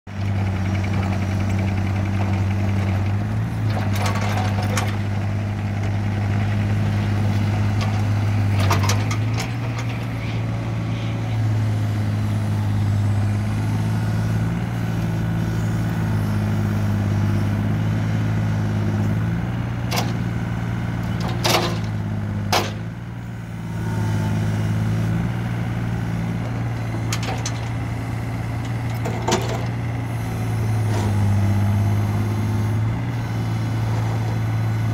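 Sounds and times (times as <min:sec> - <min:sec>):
excavator diesel engine running: 0:00.1 - 0:34.9
hydraulics working: 0:00.6 - 0:16.8, 0:23.8 - 0:34.9.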